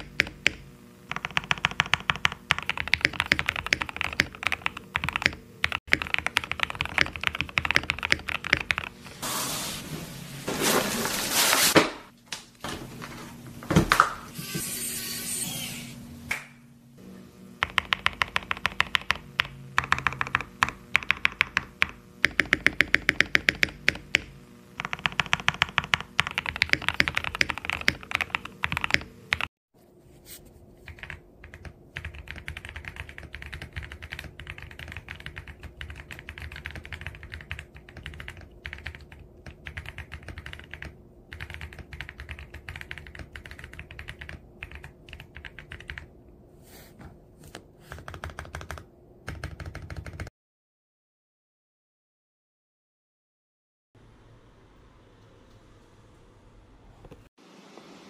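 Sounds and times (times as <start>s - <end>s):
soft keyboard typing: 0.0s - 8.9s, 17.6s - 29.5s, 30.8s - 46.1s, 47.5s - 50.3s
loud mechanical keyboard typing: 0.0s - 9.0s, 17.6s - 29.5s, 30.9s - 46.1s, 47.9s - 50.3s.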